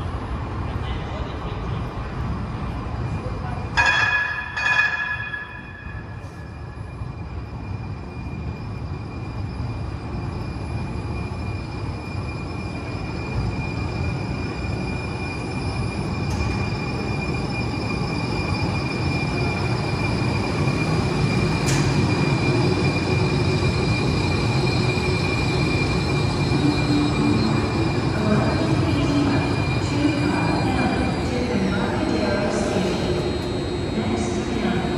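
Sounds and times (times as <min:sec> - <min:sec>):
light-rail train rumble: 0:00.0 - 0:34.9.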